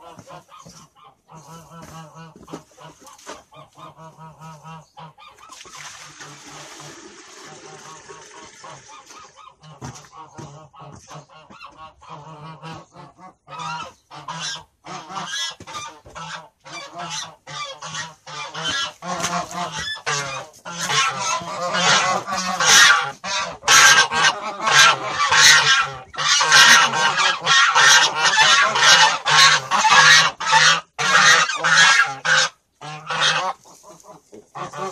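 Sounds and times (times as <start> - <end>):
poultry honking: 9.6 - 33.6.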